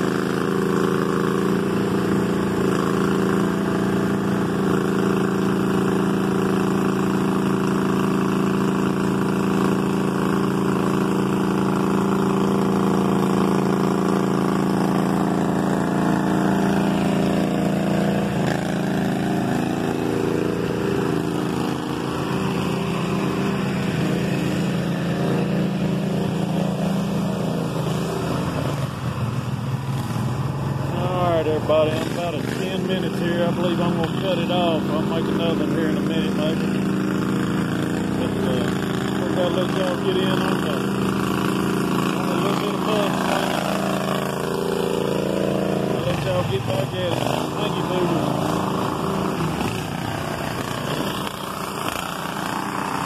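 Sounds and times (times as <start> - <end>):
lawn tractor engines running: 0.0 - 53.0.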